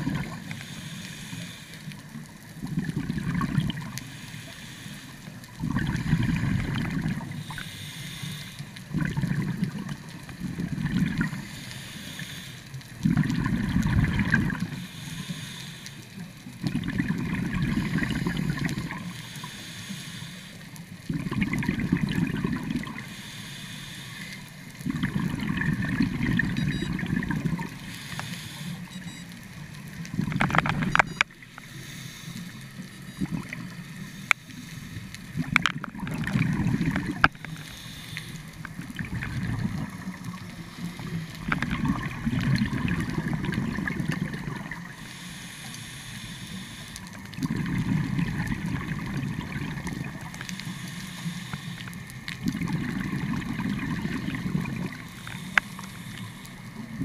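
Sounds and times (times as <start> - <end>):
hissing inhalations: 0.5 - 2.0, 4.0 - 5.4, 7.3 - 8.8, 11.4 - 12.8, 14.7 - 16.2, 17.8 - 20.8, 23.0 - 24.6, 27.8 - 29.0, 31.5 - 33.0, 33.7 - 35.4, 37.2 - 38.8, 45.0 - 47.2, 50.4 - 52.2, 55.0 - 57.0
bubbly underwater exhalations: 2.6 - 4.0, 5.6 - 7.4, 8.9 - 11.4, 13.0 - 14.8, 16.6 - 19.1, 21.0 - 23.0, 24.8 - 27.8, 33.0 - 33.8, 35.3 - 37.5, 38.7 - 45.0, 47.3 - 50.3, 52.4 - 55.6.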